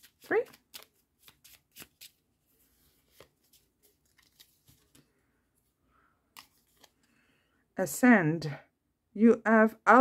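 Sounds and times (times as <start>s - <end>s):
cards being shuffled: 0.0s - 5.2s, 6.3s - 7.2s.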